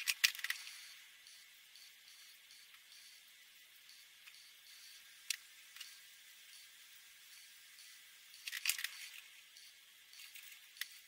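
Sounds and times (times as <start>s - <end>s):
marker clicks and clatter: 0.0s - 0.8s, 8.4s - 9.3s.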